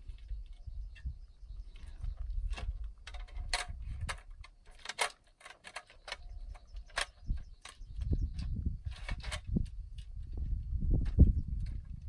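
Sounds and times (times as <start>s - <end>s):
wind rumble on microphone: 0.0s - 4.5s, 6.1s - 12.0s.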